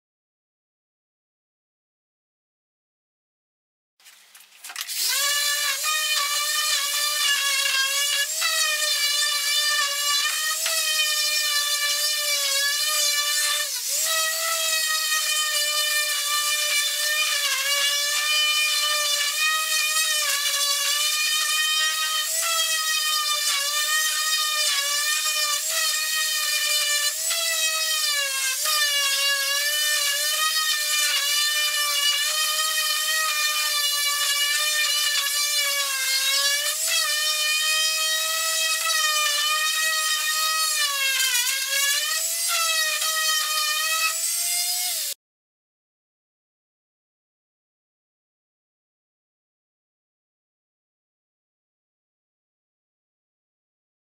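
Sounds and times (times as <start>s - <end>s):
orbital sander whining on wood: 5.0s - 45.2s.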